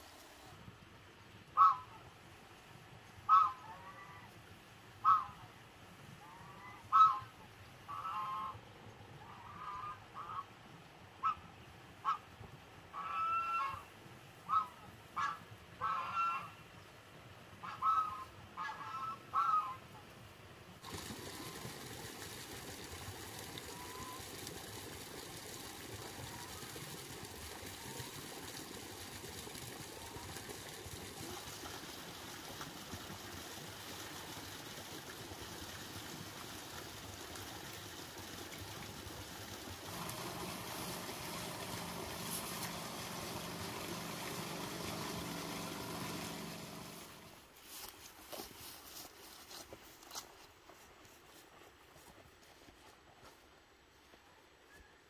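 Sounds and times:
pump motor humming: 0:00.0 - 0:00.7, 0:20.8 - 0:47.6
sprayer hissing spray: 0:39.9 - 0:47.4.

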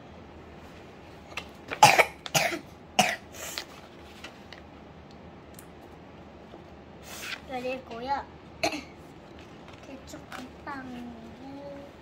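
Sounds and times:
child coughing: 0:01.8 - 0:03.3, 0:08.6 - 0:09.0.

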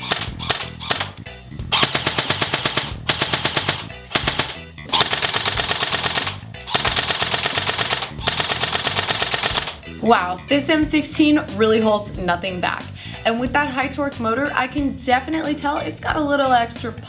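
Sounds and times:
airsoft rifle firing bursts: 0:00.0 - 0:01.2, 0:01.8 - 0:09.8.

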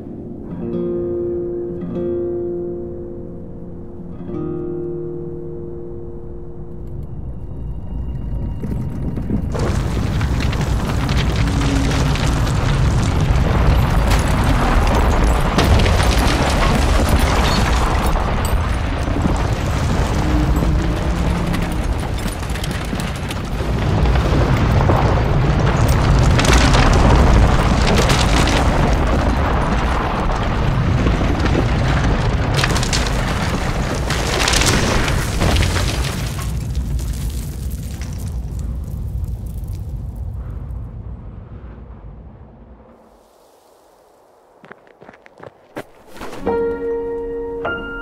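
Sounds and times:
deep continuous rumble: 0:06.4 - 0:43.9
cracks and knocks: 0:08.6 - 0:40.0.

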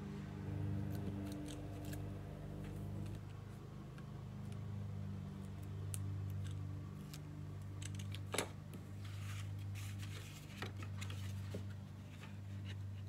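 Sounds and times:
steady low hum: 0:00.0 - 0:13.0
paper rustling: 0:09.0 - 0:12.7.

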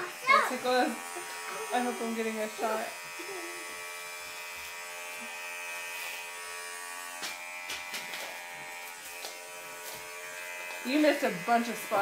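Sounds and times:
electric hair clippers buzzing: 0:00.0 - 0:12.0.

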